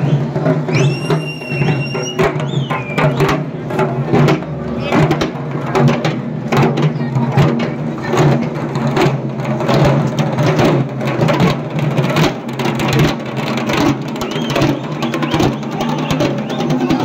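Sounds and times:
drums beaten quickly: 0:00.0 - 0:17.0.

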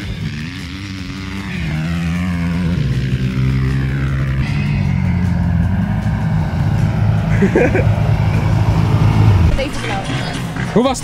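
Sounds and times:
vehicle engine pulling away: 0:00.0 - 0:11.0.

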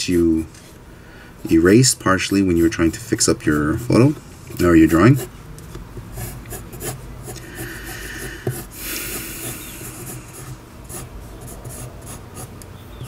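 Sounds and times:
pencil drawing on paper: 0:06.1 - 0:12.5.

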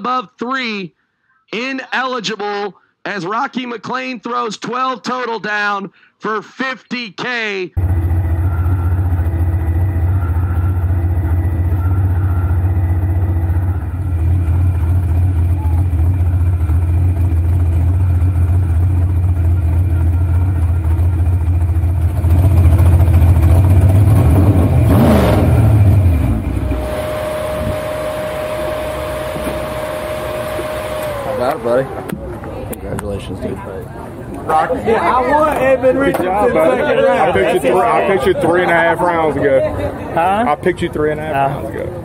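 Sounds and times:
steady high hum: 0:07.8 - 0:16.9, 0:26.3 - 0:32.6
dragster engine rumbling: 0:07.8 - 0:34.7.

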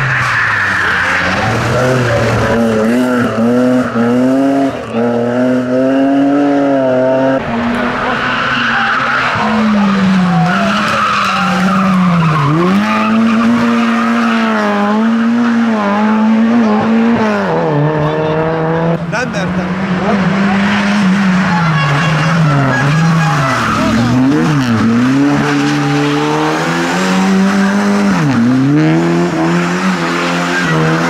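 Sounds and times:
rally car engine revving: 0:00.0 - 0:31.0
tyres squealing: 0:07.4 - 0:14.6, 0:21.4 - 0:28.2.

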